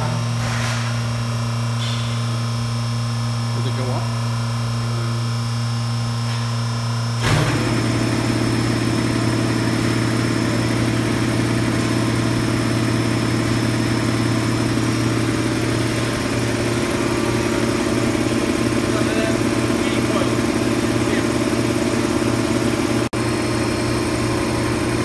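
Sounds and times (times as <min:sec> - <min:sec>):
machine motor clunk: 0:00.0 - 0:02.4, 0:07.2 - 0:08.1.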